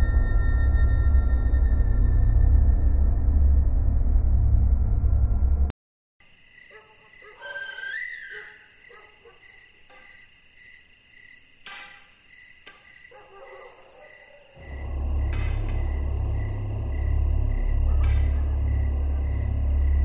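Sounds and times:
crickets chirping: 6.2s - 20.0s
loud drone: 14.6s - 20.0s.

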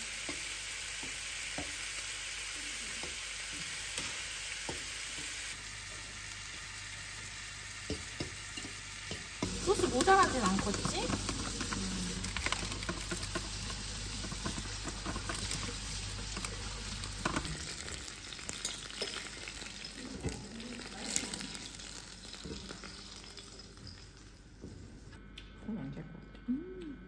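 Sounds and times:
steak sizzling in a pan: 0.0s - 20.2s.

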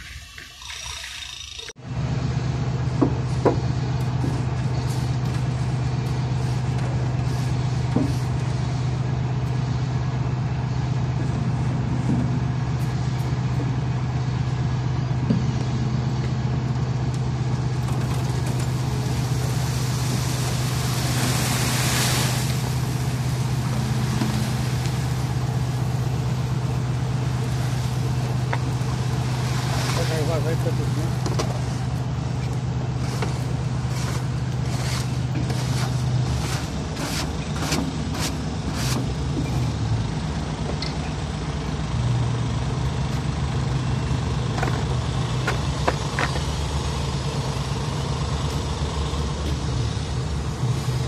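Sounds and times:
truck engine humming: 0.0s - 51.0s
rushing hiss: 18.9s - 26.6s.

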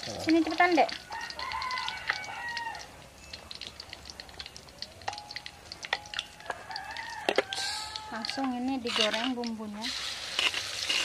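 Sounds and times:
oil frying crackling: 0.0s - 11.0s
rooster crowing: 1.0s - 2.9s, 6.4s - 8.4s.

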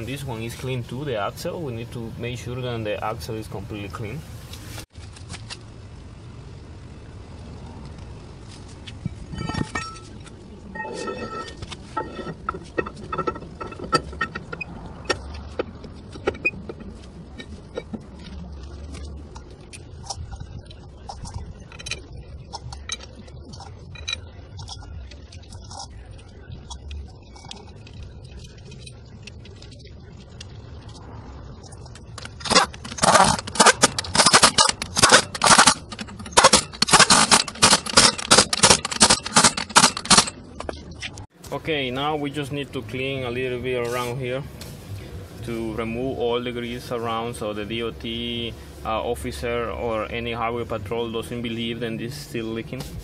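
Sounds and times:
metal clicking and knocking: 9.1s - 41.3s.

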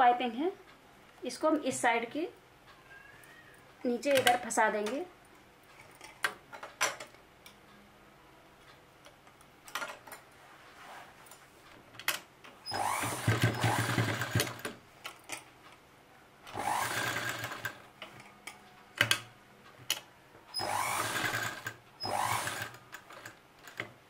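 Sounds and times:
sewing machine stitching: 12.6s - 14.8s, 16.5s - 17.8s, 20.6s - 23.9s.

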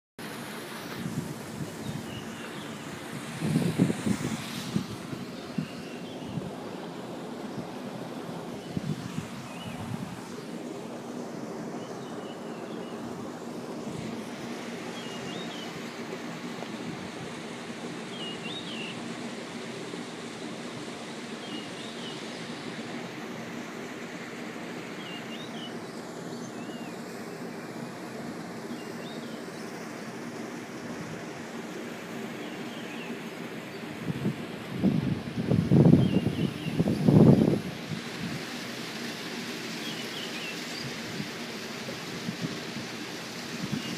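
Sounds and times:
small waterfall rushing: 0.2s - 43.9s
wind buffeting microphone: 0.9s - 6.6s, 8.6s - 10.4s, 34.0s - 38.5s.

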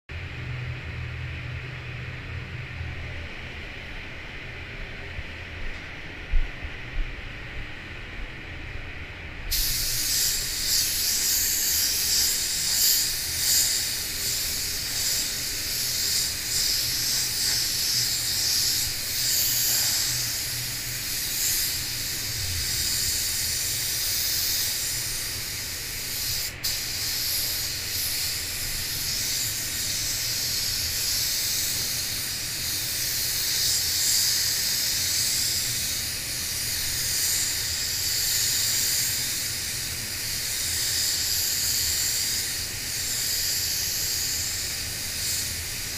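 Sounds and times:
low steady hum: 0.1s - 37.5s
paint spray gun hissing: 9.5s - 45.9s.

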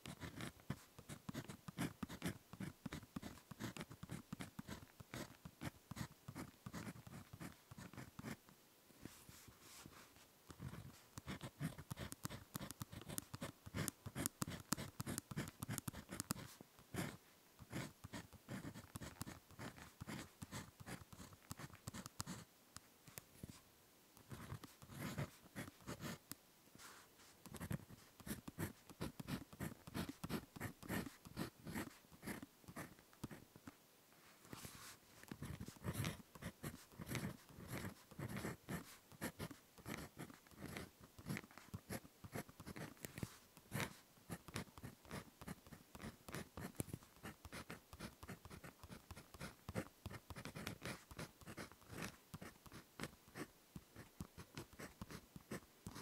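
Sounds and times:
pen scratching on paper: 0.0s - 8.4s, 10.5s - 22.5s, 24.2s - 26.2s, 26.8s - 33.4s, 34.5s - 56.0s.

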